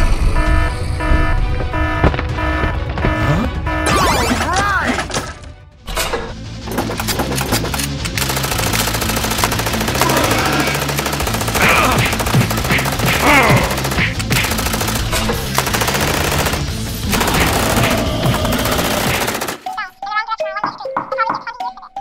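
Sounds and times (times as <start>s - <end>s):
background music: 0.0s - 22.0s
cartoon gatling guns firing: 6.7s - 19.8s.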